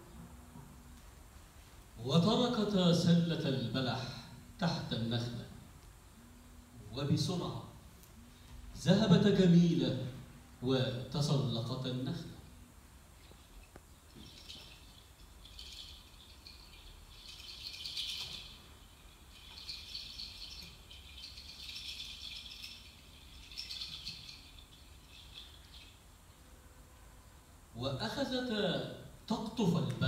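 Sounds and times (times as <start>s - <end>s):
shaken percussion rattle: 13.1s - 26.3s.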